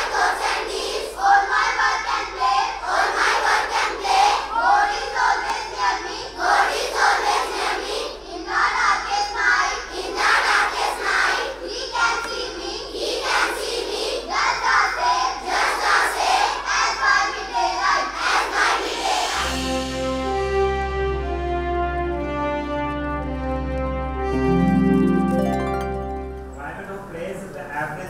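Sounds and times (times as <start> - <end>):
children singing in unison: 0.0 - 20.3.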